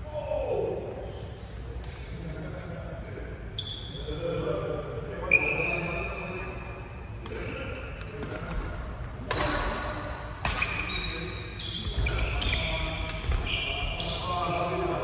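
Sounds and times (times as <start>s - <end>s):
rackets hitting shuttlecock: 7.2s - 11.0s.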